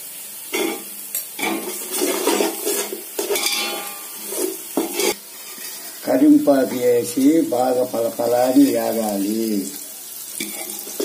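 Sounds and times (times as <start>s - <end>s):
spices frying in hot oil: 0.0s - 11.0s
metal ladle scraping a pot: 1.4s - 6.0s, 10.4s - 11.0s.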